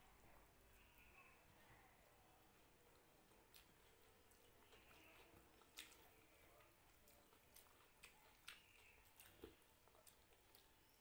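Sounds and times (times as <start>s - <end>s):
wet clicks of eating by hand: 2.7s - 11.0s.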